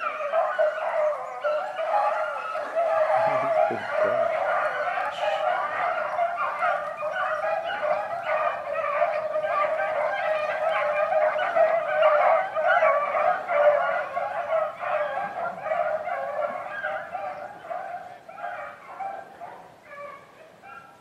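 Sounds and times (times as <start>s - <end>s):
hounds baying in chorus: 0.0s - 21.0s.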